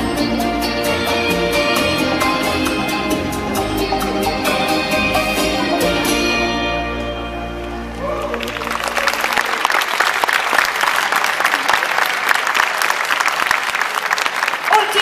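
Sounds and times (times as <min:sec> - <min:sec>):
audience applauding: 0:07.6 - 0:15.0.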